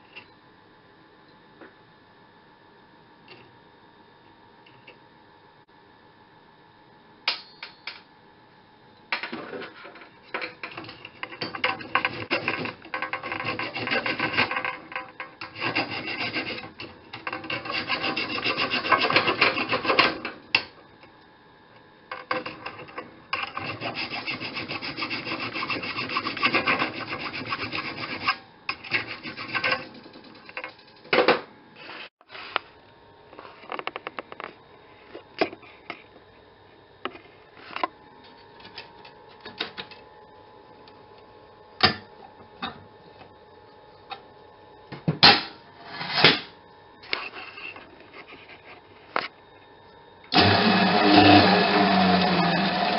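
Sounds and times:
hand file scraping metal: 0:11.0 - 0:20.3, 0:22.3 - 0:30.1.

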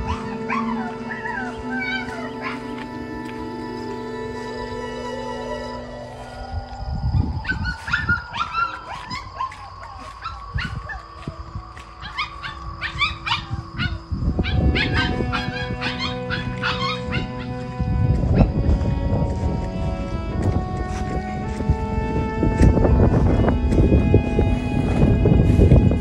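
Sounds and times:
puppy crying: 0:00.0 - 0:02.8, 0:12.0 - 0:17.6
background music with held tones: 0:00.0 - 0:26.0.

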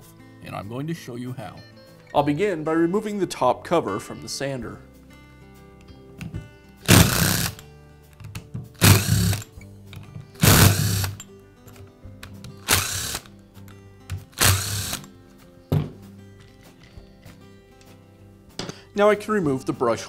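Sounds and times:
cordless drill running: 0:06.8 - 0:07.6, 0:08.8 - 0:09.5, 0:10.4 - 0:11.2, 0:12.6 - 0:13.3, 0:14.4 - 0:15.1.

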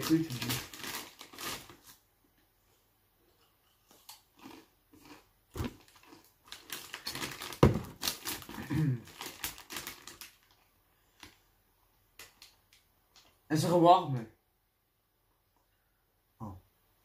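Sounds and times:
foil bag crinkling: 0:00.0 - 0:02.0, 0:05.6 - 0:11.4.

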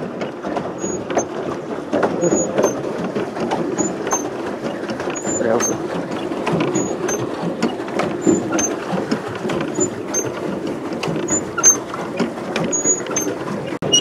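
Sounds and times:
paddle wheel churning water: 0:00.0 - 0:14.0
clicks and high squeaks: 0:00.8 - 0:01.4, 0:02.2 - 0:02.8, 0:03.7 - 0:08.8, 0:09.5 - 0:10.4, 0:11.2 - 0:14.0.

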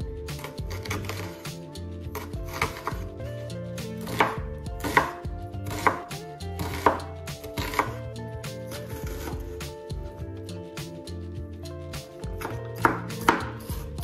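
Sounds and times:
background music: 0:00.0 - 0:14.0
knife chopping on wooden board: 0:00.4 - 0:01.4, 0:02.1 - 0:03.0, 0:04.0 - 0:08.0, 0:09.0 - 0:09.6, 0:12.4 - 0:14.0.

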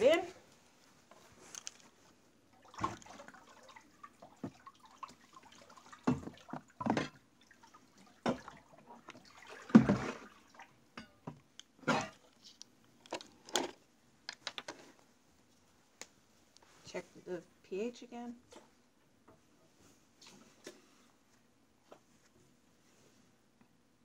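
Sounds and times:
water sloshing in plastic tub: 0:02.5 - 0:10.8.

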